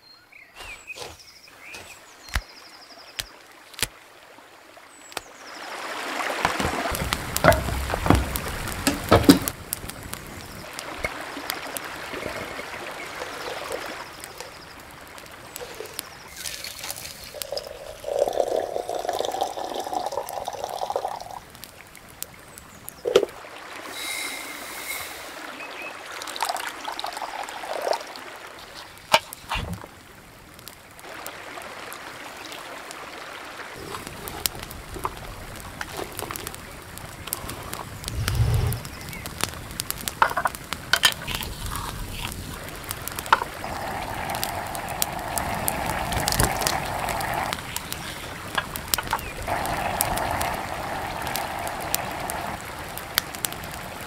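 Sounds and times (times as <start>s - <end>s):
campfire crackling: 0.5s - 54.0s
stream rushing: 0.6s - 21.6s, 23.0s - 54.0s
clay dishes clicking and knocking: 6.5s - 9.5s, 40.2s - 41.4s.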